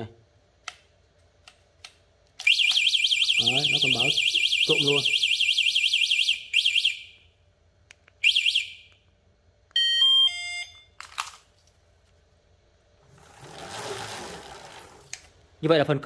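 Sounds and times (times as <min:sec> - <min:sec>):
motorbike alarm warbling siren: 0:02.4 - 0:07.2.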